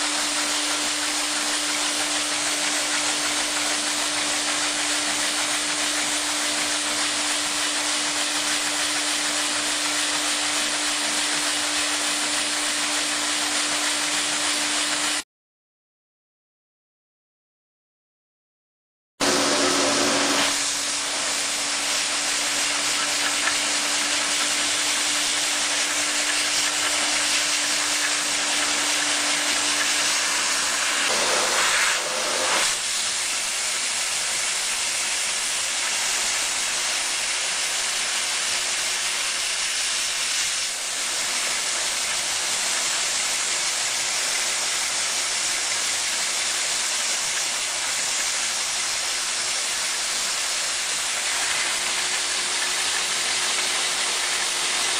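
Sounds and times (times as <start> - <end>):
rushing hiss of air: 25.5 - 45.6.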